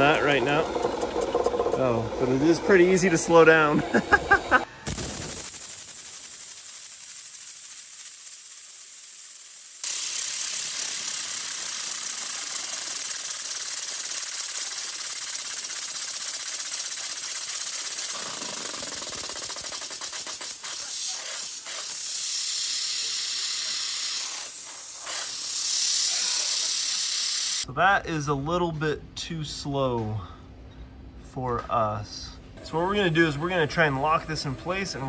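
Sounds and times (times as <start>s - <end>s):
waterjet stream hissing: 0.0s - 27.6s
fast even ticking: 5.2s - 20.8s.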